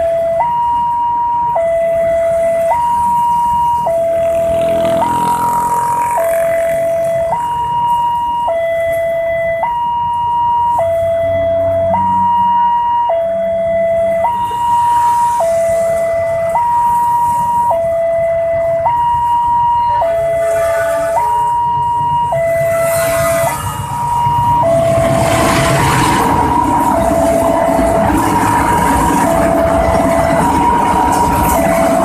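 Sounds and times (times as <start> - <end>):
two-tone level-crossing siren: 0.0 - 32.0
train rumble: 20.4 - 32.0
freight train rolling past: 22.6 - 32.0.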